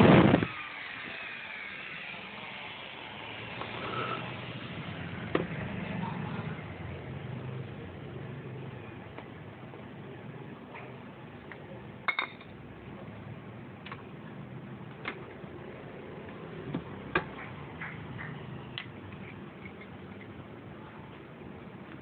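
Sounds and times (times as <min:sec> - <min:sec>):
low steady background noise: 0:04.4 - 0:22.0.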